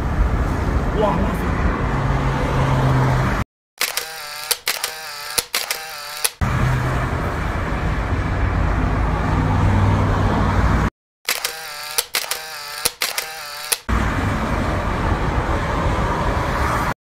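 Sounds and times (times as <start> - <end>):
car road noise: 0.0 - 3.4, 6.2 - 10.9, 12.2 - 17.0
camera shutter clicks and whir: 3.8 - 6.4, 11.3 - 13.9.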